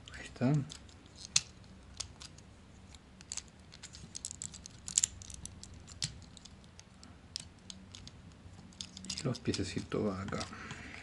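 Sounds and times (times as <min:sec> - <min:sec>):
plastic toy parts clicking: 0:00.5 - 0:10.5.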